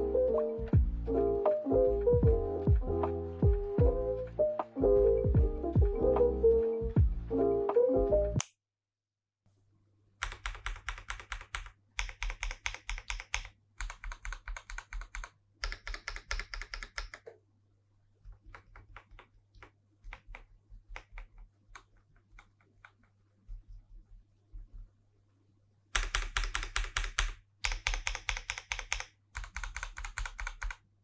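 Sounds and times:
mechanical keyboard typing: 0:10.2 - 0:17.4, 0:18.3 - 0:23.1, 0:25.9 - 0:30.9.

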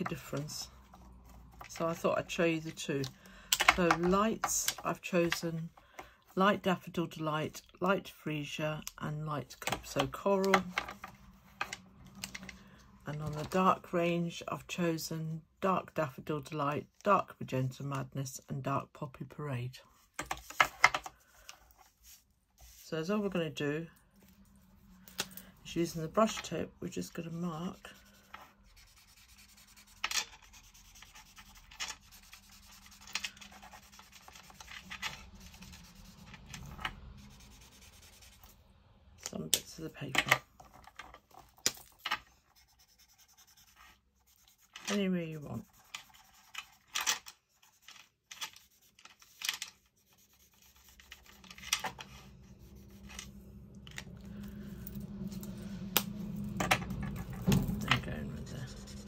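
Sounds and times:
low steady hum: 0:21.1 - 0:59.0
marker scratching on paper: 0:27.4 - 0:36.6, 0:37.2 - 0:38.5, 0:42.4 - 0:46.9, 0:48.6 - 0:53.4, 0:58.1 - 0:59.0.

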